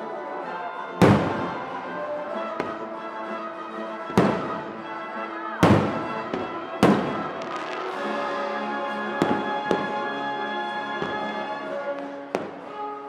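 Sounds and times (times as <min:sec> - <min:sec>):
music with long held notes: 0:00.0 - 0:13.0
firework cracks: 0:01.0 - 0:01.6, 0:05.6 - 0:08.4.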